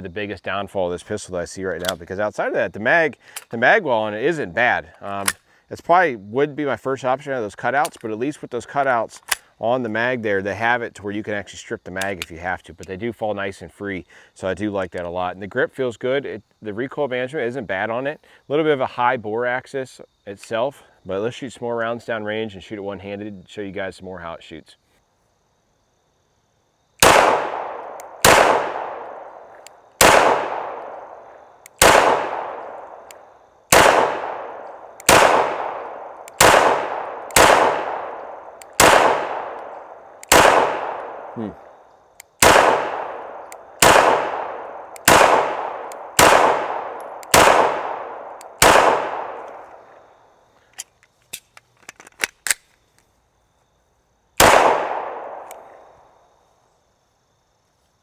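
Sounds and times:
pistol shots ringing out: 27.0s - 33.1s, 33.7s - 41.4s, 42.4s - 49.7s, 54.4s - 55.7s.

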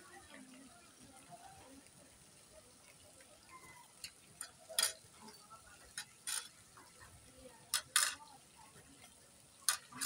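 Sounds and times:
cutlery clinking on plates and glasses: 4.4s - 6.6s, 7.7s - 8.3s, 9.6s - 10.0s.

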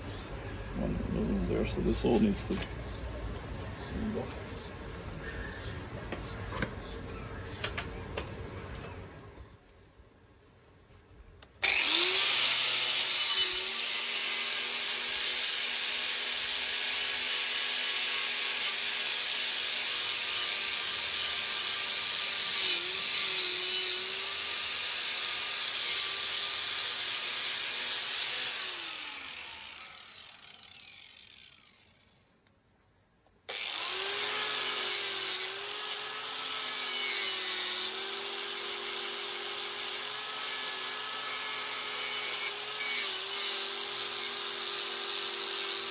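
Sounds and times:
angle grinder whining on steel: 11.6s - 32.3s, 33.5s - 45.9s.

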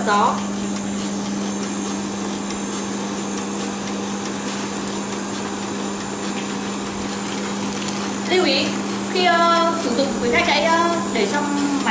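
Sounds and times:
band sealer hum: 0.0s - 11.9s
whirring of motor and fan: 0.0s - 11.9s.

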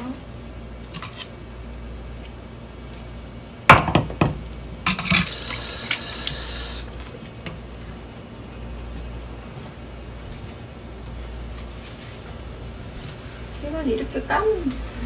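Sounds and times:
knocks in kitchen sink: 3.7s - 4.4s.

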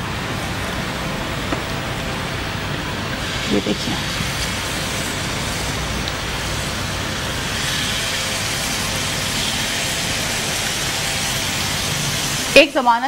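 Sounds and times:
chicken sizzling in oil: 2.7s - 13.0s.

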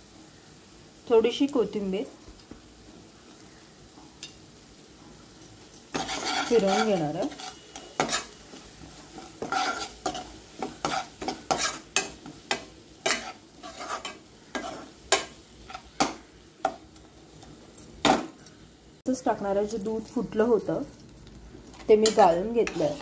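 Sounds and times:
oil sizzling: 0.0s - 23.0s
spatula scraping a pan: 5.6s - 17.5s, 21.7s - 23.0s.

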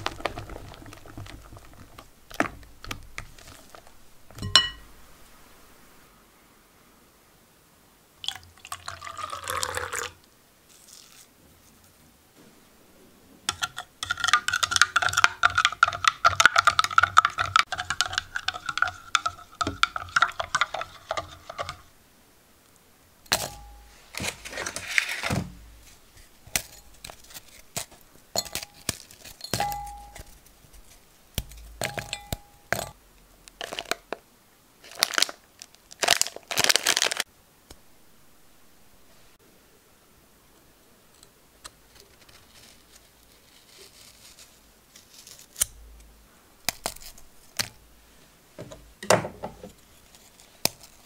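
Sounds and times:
plastic wrapper crinkling: 0.0s - 4.0s, 33.5s - 34.2s, 34.8s - 37.3s
biscuits snapping: 0.0s - 4.4s
spoon stirring in glass cup: 0.0s - 4.8s, 13.5s - 21.9s, 26.2s - 33.0s
biscuits clinking into glass bowl: 4.3s - 4.9s, 28.4s - 30.4s, 31.4s - 33.0s.

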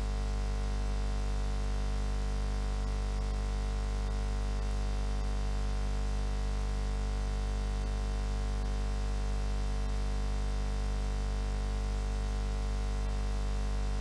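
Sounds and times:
steady buzzing hum: 0.0s - 14.0s.

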